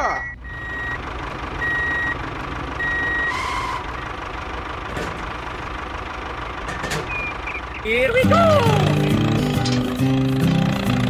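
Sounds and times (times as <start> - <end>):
vehicle reversing beeper: 0.0 - 4.2, 7.0 - 8.1
low engine rumble: 0.0 - 11.0.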